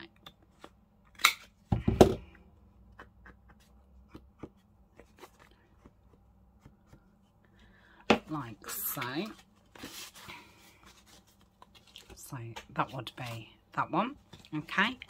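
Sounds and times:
small clicks and paper rustles: 9.0 - 13.4.

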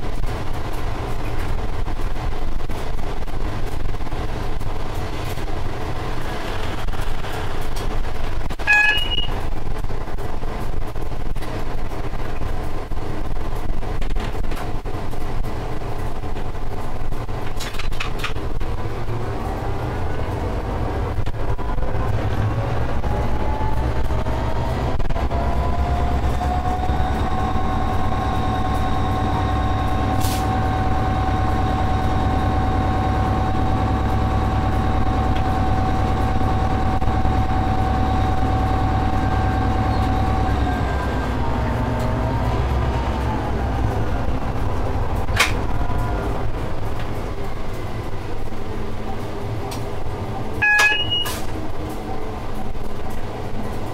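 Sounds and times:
train rumble with whine: 0.0 - 53.9.

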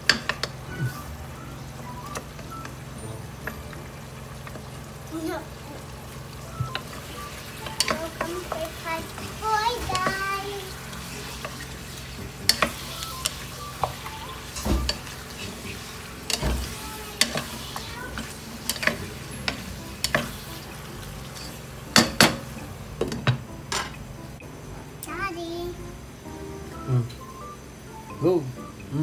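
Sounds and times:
chicken sizzling: 0.0 - 24.4
wooden spoon scraping a pot: 14.8 - 20.6, 21.2 - 21.7.

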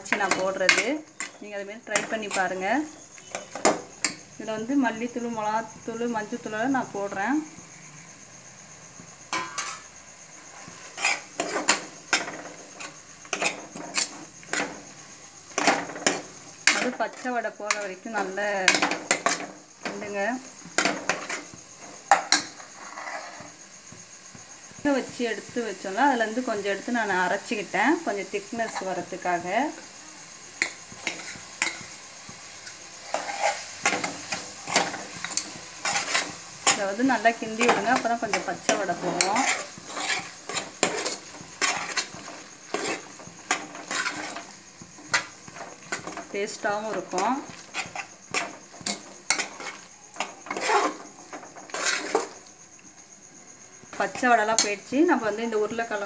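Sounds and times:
metal spoon scraping a pot: 0.0 - 4.2, 9.3 - 9.9, 10.5 - 14.9, 15.5 - 20.0, 20.7 - 23.6, 30.6 - 31.9, 32.6 - 52.5.

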